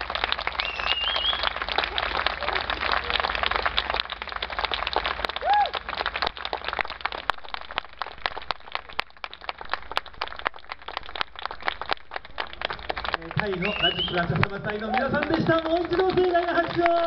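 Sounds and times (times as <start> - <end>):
audience clapping: 0.0 - 17.0
call from the crowd: 5.4 - 5.8, 13.2 - 17.0.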